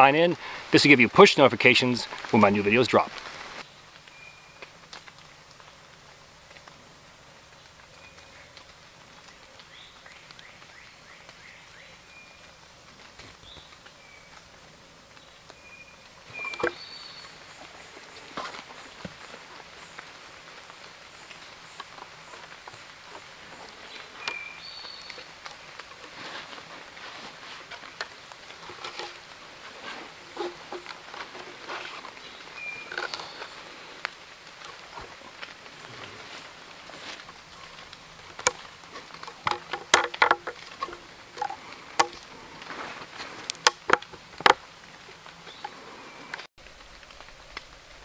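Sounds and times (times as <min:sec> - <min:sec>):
raindrops ticking on leaves: 0:00.0 - 0:48.0
soft steady hiss: 0:00.0 - 0:48.0
hands handling cord and logs: 0:12.9 - 0:46.5
bird chirps: 0:15.6 - 0:20.0, 0:23.5 - 0:25.3, 0:31.8 - 0:33.7
wooden knocks and clicks: 0:16.4 - 0:16.8, 0:28.0 - 0:29.2, 0:29.9 - 0:32.0, 0:38.4 - 0:42.2, 0:43.5 - 0:44.6.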